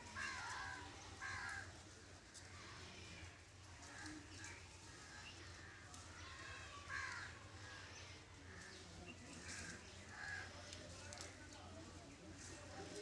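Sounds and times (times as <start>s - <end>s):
crows cawing: 0.2s - 1.7s, 6.9s - 7.4s, 9.5s - 10.5s.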